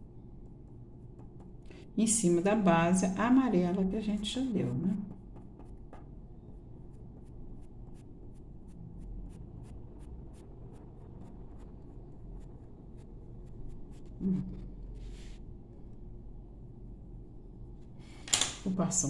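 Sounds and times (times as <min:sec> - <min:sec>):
pencil scratching on paper: 0:05.1 - 0:06.1, 0:06.8 - 0:16.0.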